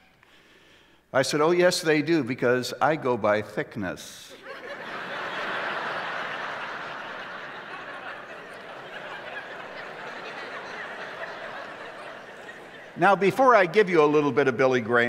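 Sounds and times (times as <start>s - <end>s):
audience laughing: 4.4s - 15.0s.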